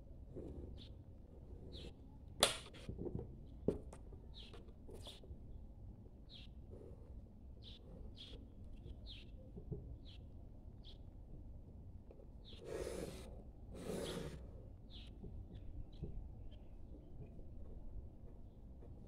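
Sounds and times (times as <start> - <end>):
pencil scratching on paper: 12.6 - 14.4.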